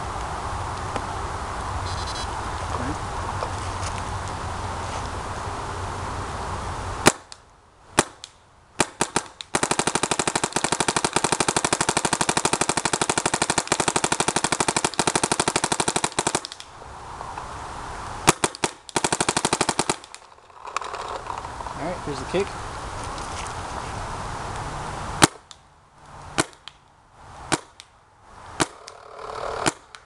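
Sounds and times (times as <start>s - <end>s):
paintball marker firing: 8.0s - 16.7s, 18.3s - 20.2s, 25.2s - 25.6s, 26.4s - 26.8s, 27.5s - 27.9s, 28.6s - 30.0s.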